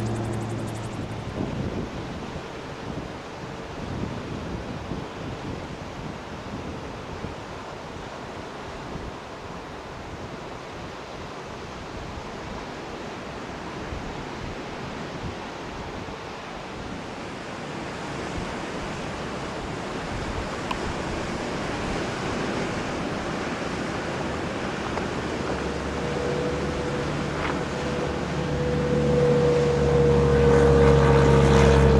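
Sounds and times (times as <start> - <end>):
light plane engine droning: 0.0 - 2.6, 17.9 - 31.9
wind noise on microphone: 0.0 - 31.9.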